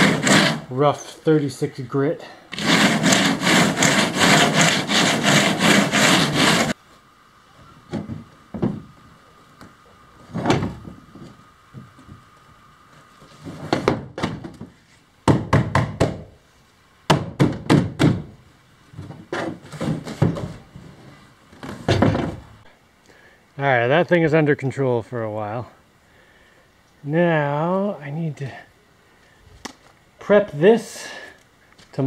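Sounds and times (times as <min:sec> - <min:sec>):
sandpaper rubbing: 0:00.0 - 0:00.7, 0:02.5 - 0:06.8
thunks and knocks: 0:07.9 - 0:08.9, 0:10.3 - 0:12.2, 0:17.1 - 0:18.4, 0:21.6 - 0:22.5.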